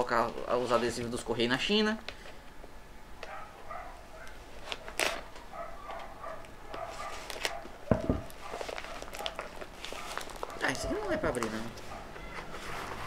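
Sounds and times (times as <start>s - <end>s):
package rustling and crackling: 4.2s - 13.0s
scissors snipping plastic mailer: 4.7s - 6.1s
scissors knocking on table: 7.9s - 8.3s.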